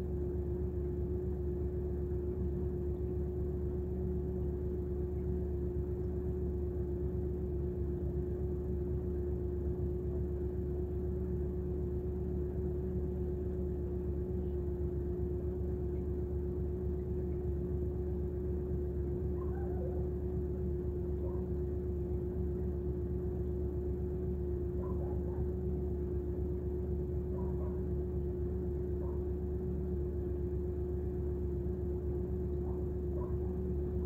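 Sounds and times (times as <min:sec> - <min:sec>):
car engine idling: 0:00.0 - 0:34.0.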